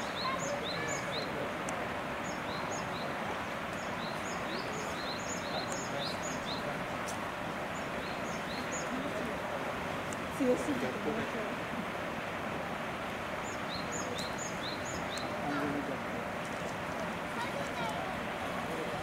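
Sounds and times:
small birds chirping: 0.0s - 9.4s, 13.2s - 18.1s
outdoor background hiss: 0.0s - 19.0s.

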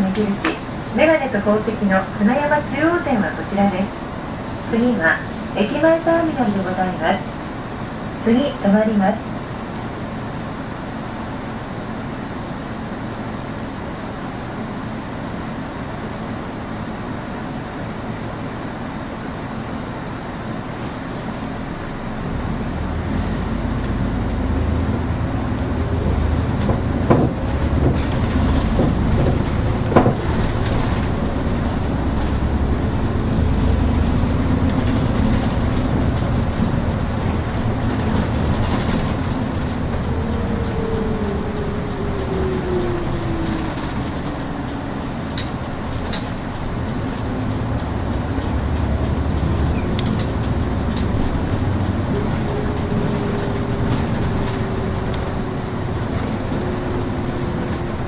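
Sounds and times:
bus engine and road rumble: 0.0s - 58.0s
sharp knocks and rattles: 26.5s - 32.4s.

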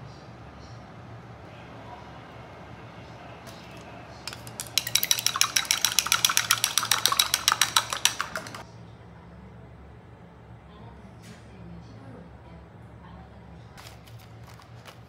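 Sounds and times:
chopsticks clinking in glass bowl: 4.3s - 8.6s.

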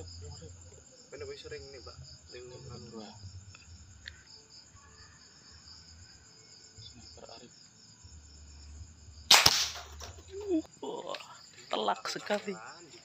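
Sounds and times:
crickets chirping: 0.0s - 13.0s
air rifle shot: 9.3s - 10.1s.

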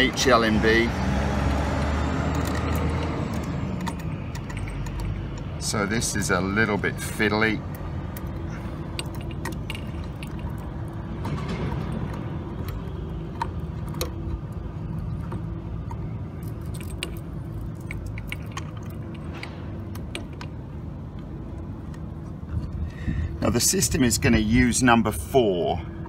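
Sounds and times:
small metallic clicks and taps: 2.2s - 5.5s, 7.7s - 21.3s.

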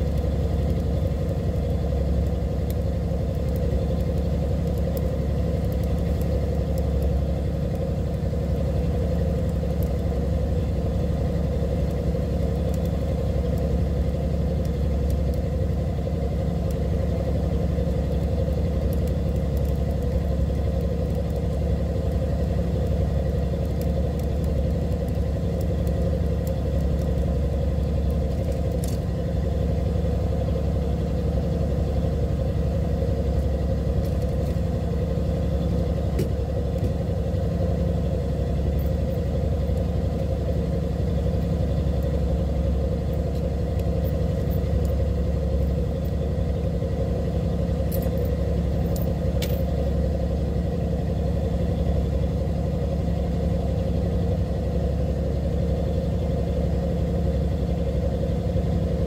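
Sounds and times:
boat engine humming: 0.0s - 59.0s.

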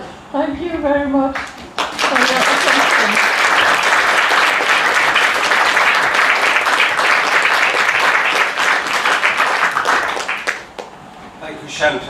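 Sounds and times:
audience applauding: 1.4s - 11.0s.

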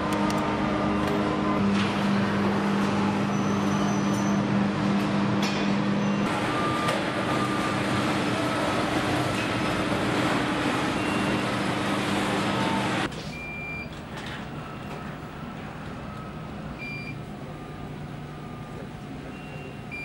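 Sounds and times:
machinery hum: 0.0s - 13.1s.

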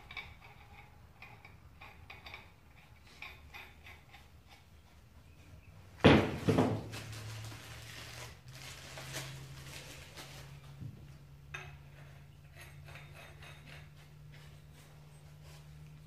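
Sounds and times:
metal pipe fittings clanking: 0.0s - 5.0s, 11.5s - 15.7s
rustling: 6.2s - 11.2s.

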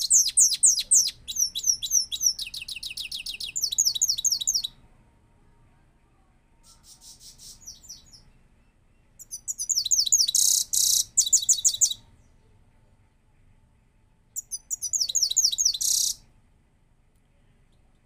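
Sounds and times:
goldfinch singing trills: 0.0s - 4.7s, 6.7s - 8.3s, 9.2s - 12.0s, 14.4s - 16.2s.

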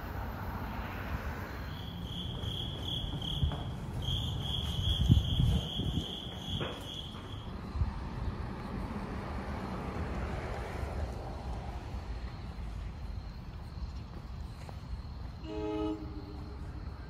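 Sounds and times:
insect chirping: 1.3s - 8.3s.

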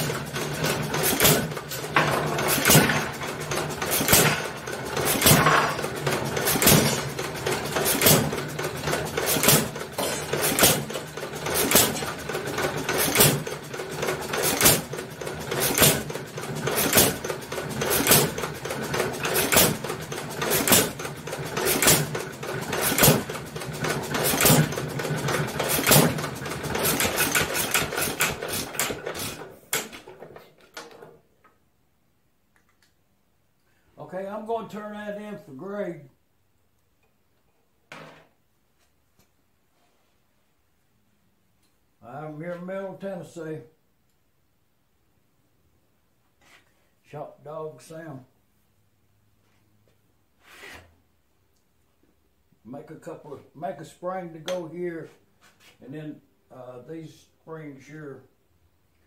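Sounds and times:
hit-and-miss engine running: 0.0s - 29.9s
sharp engine firing bangs: 6.4s - 7.1s.

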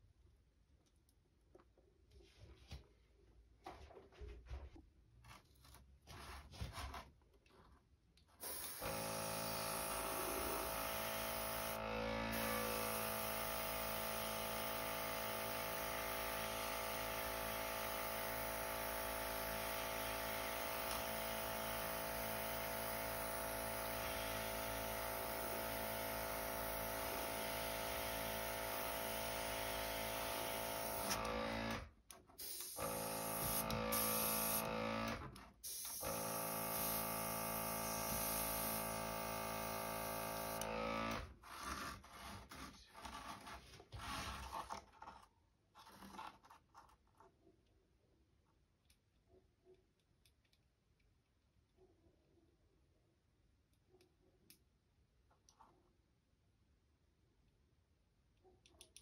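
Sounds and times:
air hissing through airbrush: 32.4s - 34.6s, 35.6s - 37.1s
compressor humming: 32.4s - 35.2s, 35.9s - 41.2s.

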